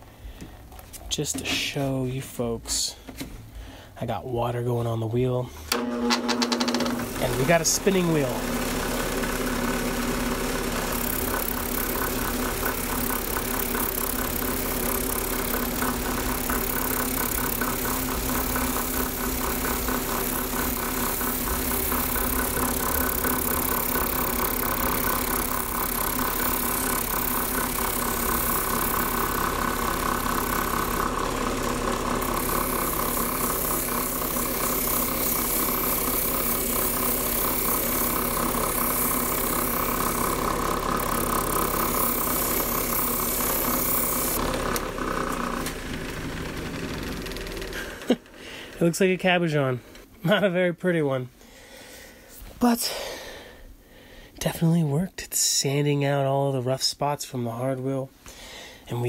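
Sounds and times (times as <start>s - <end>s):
drill press motor running: 5.7s - 48.9s.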